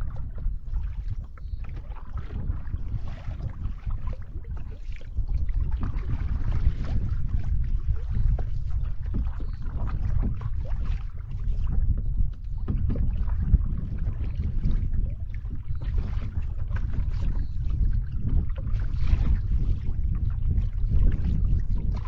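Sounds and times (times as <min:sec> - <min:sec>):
water splashing against canoe hull: 0:00.0 - 0:22.0
wind buffeting microphone: 0:00.0 - 0:22.0.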